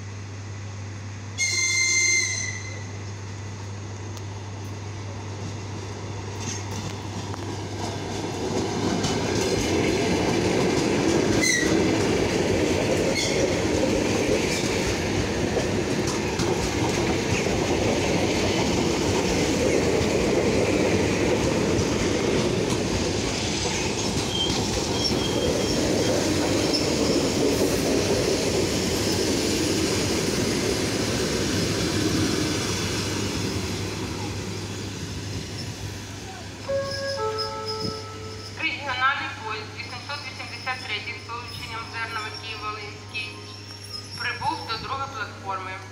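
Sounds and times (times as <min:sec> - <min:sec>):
train rolling rumble: 0:02.3 - 0:45.9
wheels clattering over rail joints: 0:06.4 - 0:20.1
high wheel squeals: 0:24.3 - 0:27.4, 0:36.7 - 0:38.6, 0:43.2 - 0:44.7.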